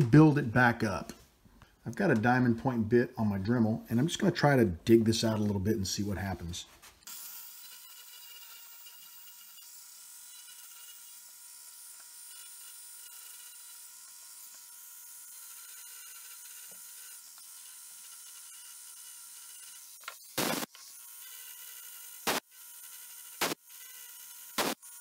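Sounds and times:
rotary tool grinding whine: 7.0s - 25.0s.

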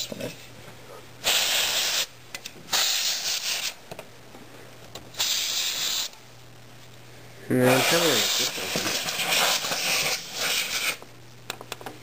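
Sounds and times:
compressed air blasts: 1.2s - 3.8s, 5.1s - 6.2s, 7.7s - 11.0s.

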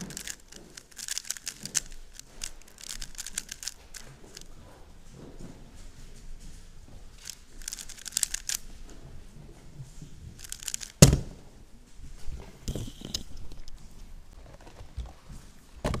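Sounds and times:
puzzle cube clicking: 0.0s - 4.5s, 7.2s - 8.6s, 10.4s - 11.2s.

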